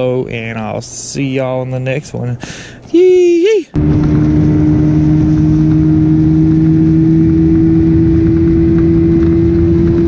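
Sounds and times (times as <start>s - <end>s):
outboard motor running: 3.8s - 10.0s.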